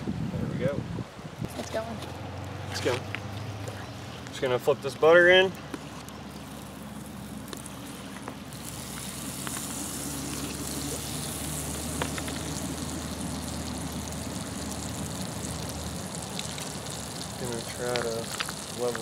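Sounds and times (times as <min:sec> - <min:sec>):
butter sizzling in a skillet: 0:06.3 - 0:19.0.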